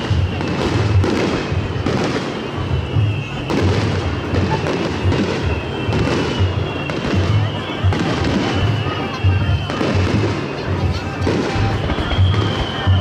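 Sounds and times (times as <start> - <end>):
fireworks bursting with crackle: 0.0 - 13.0
large taiko drum beat: 2.8 - 13.0.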